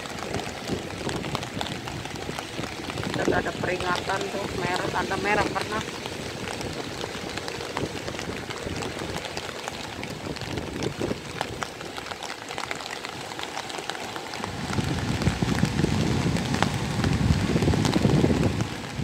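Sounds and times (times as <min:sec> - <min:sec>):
steady rain falling: 0:00.0 - 0:19.0
gusty low rumble: 0:14.4 - 0:19.0.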